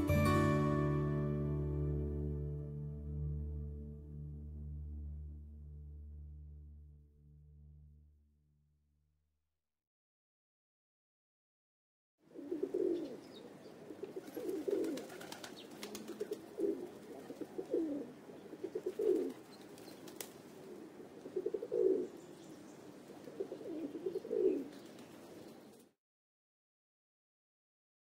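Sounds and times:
pigeons cooing: 12.3s - 25.8s.

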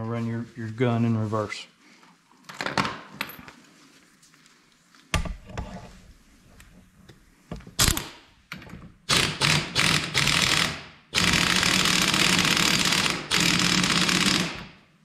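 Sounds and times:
air impact wrench hammering: 9.1s - 14.8s.

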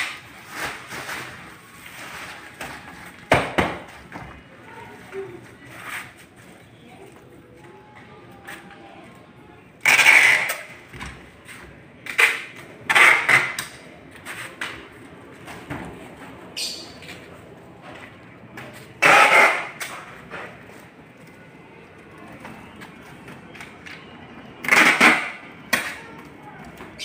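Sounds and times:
plastic-wrapped panel rustling and scraping: 0.0s - 6.6s.

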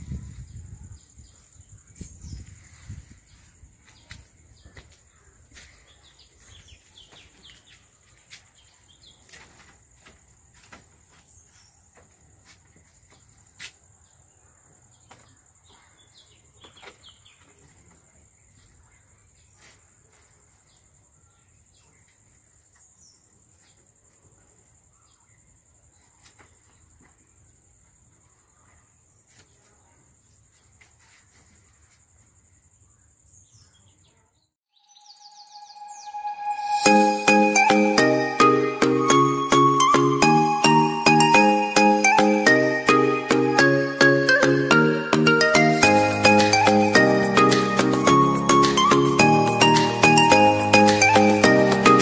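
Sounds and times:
bird chirps: 32.7s - 43.0s.

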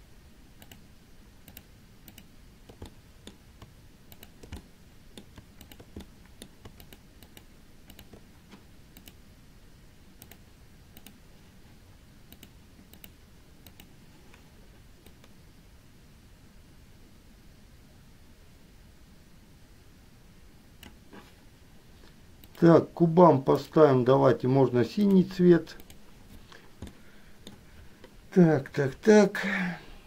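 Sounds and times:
mouse and keyboard clicking: 1.5s - 8.2s.

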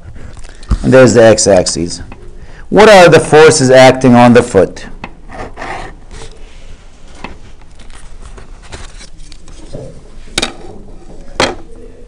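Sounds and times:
pen and ruler rustling on paper: 5.3s - 10.3s.

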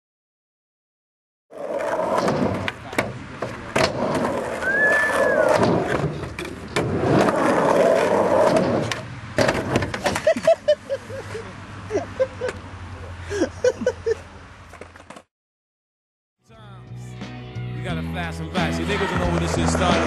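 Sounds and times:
skateboard wheels rolling: 1.5s - 11.4s, 14.6s - 15.3s, 18.9s - 20.0s
skateboard clacks: 1.7s - 10.6s, 19.1s - 20.0s.

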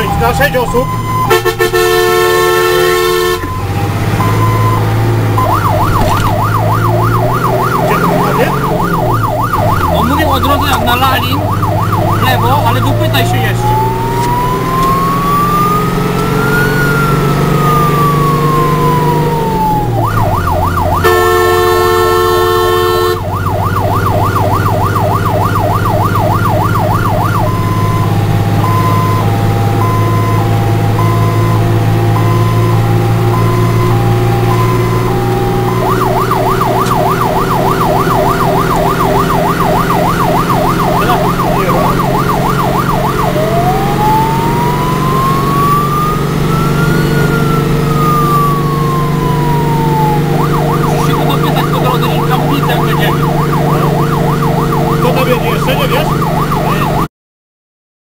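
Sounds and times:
fire engine siren: 0.0s - 57.1s
truck engine droning: 0.0s - 57.1s
horn blast: 1.3s - 3.6s, 21.0s - 23.3s.

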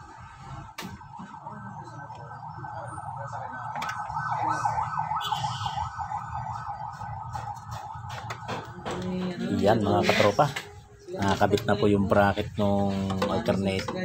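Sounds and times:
siren warbling: 0.0s - 10.4s.

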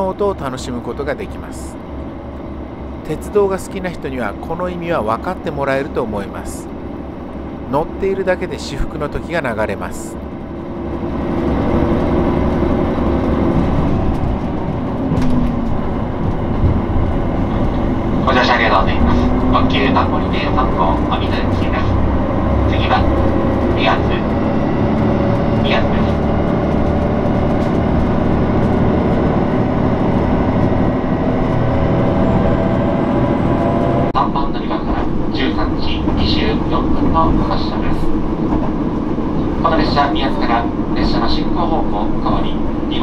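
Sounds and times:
diesel engine drone: 0.0s - 43.0s
wheel-on-rail rumble: 0.0s - 43.0s.

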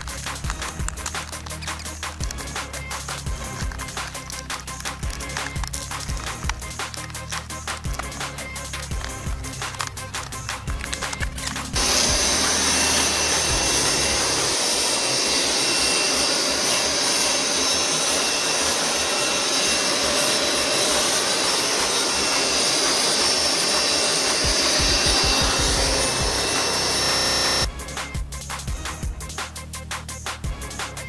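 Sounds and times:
leaf blower running: 11.6s - 27.7s.

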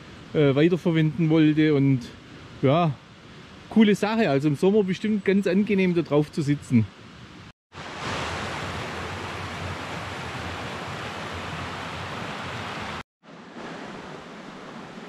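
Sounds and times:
brook water flowing: 7.8s - 13.1s.

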